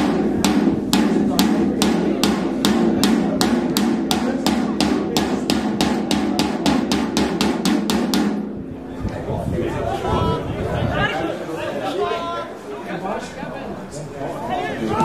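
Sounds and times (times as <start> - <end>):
supporters beating a rhythm: 0.0 - 8.7
crowd voices: 0.0 - 15.0.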